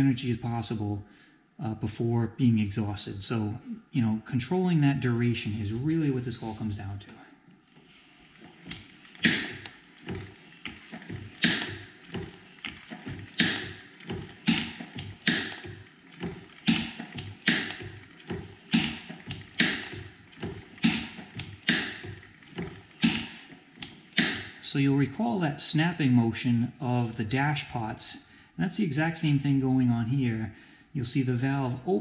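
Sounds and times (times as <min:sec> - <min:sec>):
steam engine valve gear clicking: 0:07.7 - 0:24.8.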